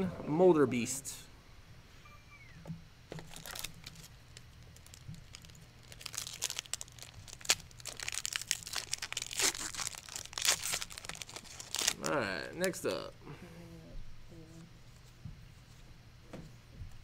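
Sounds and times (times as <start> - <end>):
foil wrapper crinkling and tearing: 3.2 - 12.8.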